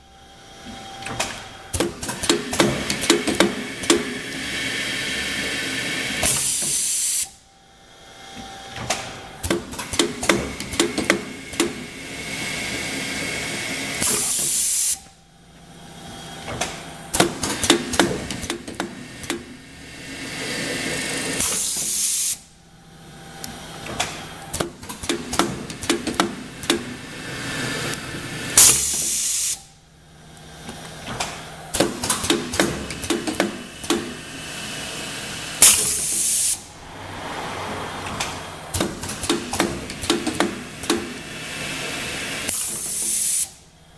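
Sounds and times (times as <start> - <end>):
machine clicks and clacks: 1.0 - 4.4, 8.8 - 11.9, 16.5 - 19.6, 23.8 - 27.0, 31.0 - 34.2, 38.2 - 41.2
loud hiss of air: 4.5 - 7.4, 28.6 - 29.7, 35.6 - 39.8, 42.5 - 43.6.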